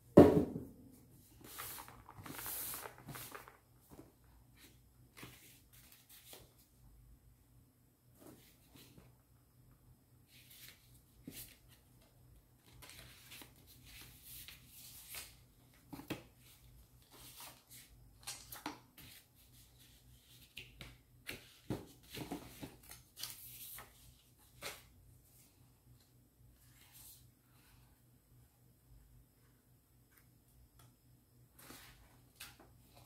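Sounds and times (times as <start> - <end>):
paper and cardboard rustling: 1.3 - 6.6.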